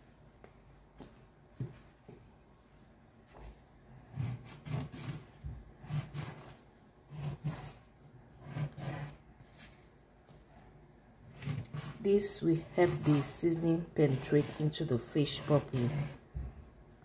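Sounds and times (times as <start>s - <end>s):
knife sawing into fish skin: 4.1s - 9.2s, 11.3s - 16.2s.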